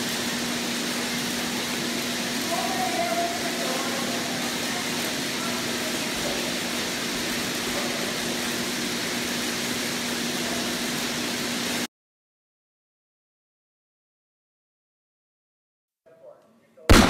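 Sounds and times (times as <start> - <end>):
conveyor motors humming: 0.0 - 11.9
toy cars rolling on plastic tracks: 0.0 - 11.9.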